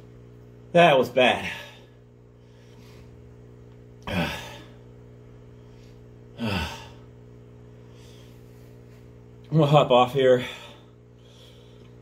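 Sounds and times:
man sighing: 4.0 - 4.8, 6.3 - 7.2.

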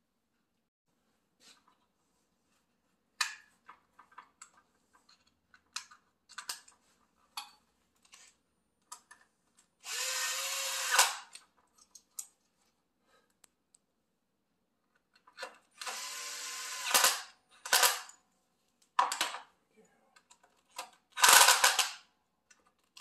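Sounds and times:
small parts and tools clicking: 3.2 - 12.7, 14.9 - 18.2, 20.2 - 23.0
cordless drill driving screw: 9.8 - 11.4, 15.8 - 17.3
drill sharp click: 9.9 - 11.3, 15.8 - 17.3.

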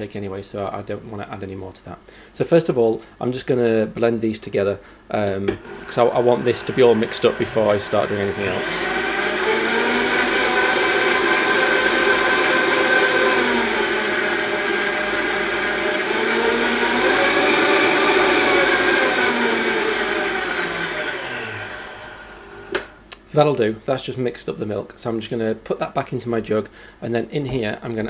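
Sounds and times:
blender motor running: 5.5 - 23.0.

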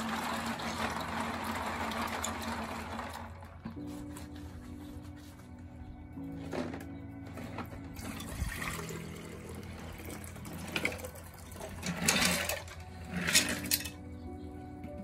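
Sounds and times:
liquid and pieces pouring into glass: 8.0 - 12.7.

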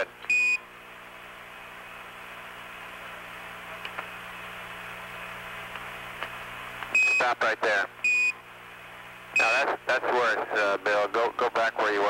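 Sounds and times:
low steady hum: 0.0 - 12.0
radio channel hiss: 7.0 - 7.9, 9.3 - 12.0.

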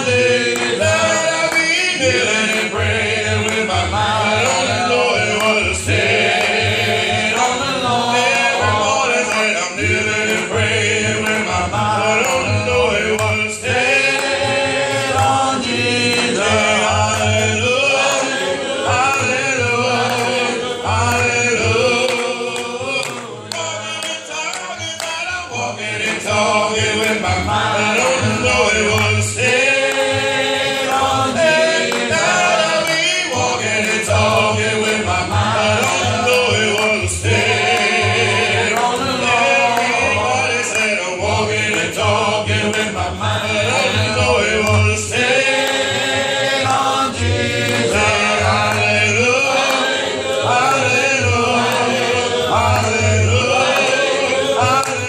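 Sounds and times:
congregation singing a cappella: 0.0 - 55.0
man leading song at microphone: 0.0 - 55.0.

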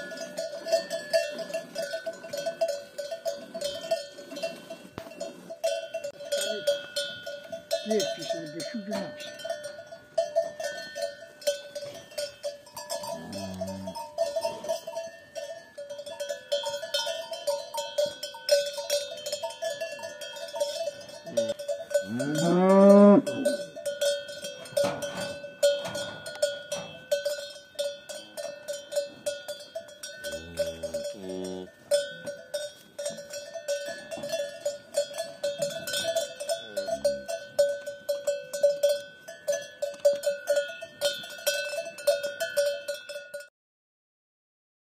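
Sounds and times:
cowbells clanking: 0.0 - 43.5
cow mooing: 13.1 - 14.0, 21.4 - 23.6, 30.2 - 31.8.

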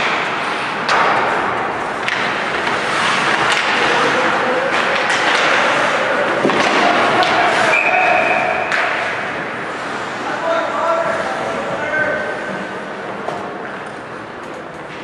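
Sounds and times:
sharp cracks of hockey sticks: 0.0 - 9.3
crowd noise and shouting: 0.0 - 15.0.

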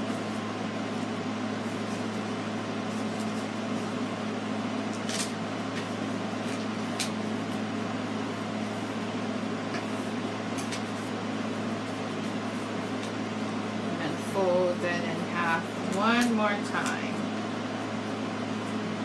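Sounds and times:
mechanical hum: 0.0 - 19.0
paper being folded: 2.9 - 4.0.

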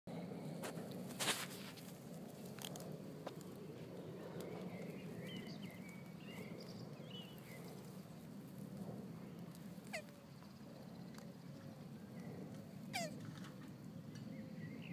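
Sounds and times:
low background hum: 0.1 - 14.9
tortoise squeaking: 9.4 - 10.4, 12.8 - 13.4.

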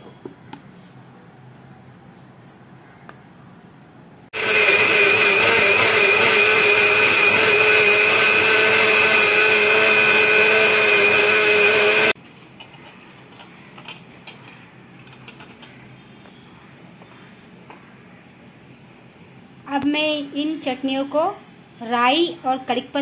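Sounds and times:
mixer grinder motor whine: 4.4 - 12.2.

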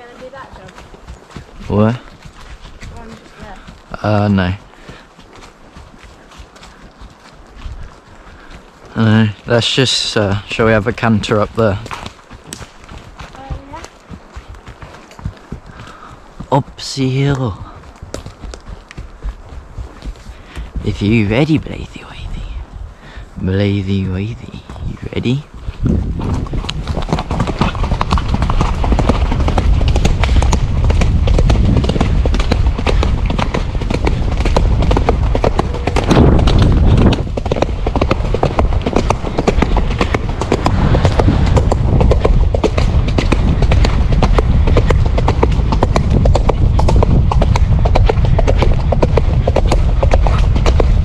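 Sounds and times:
horse hoofbeats on dirt: 0.0 - 51.0
low rumble: 24.5 - 51.0.

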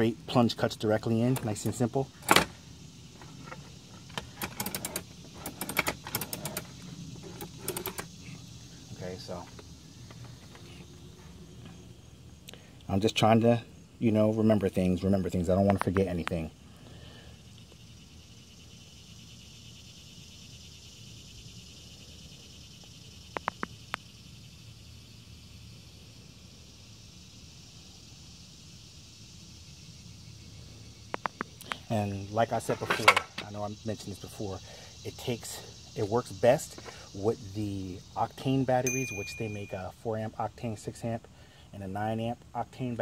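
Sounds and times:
insects trilling: 0.0 - 43.0
sharp clicks: 23.3 - 24.0, 31.1 - 31.8.

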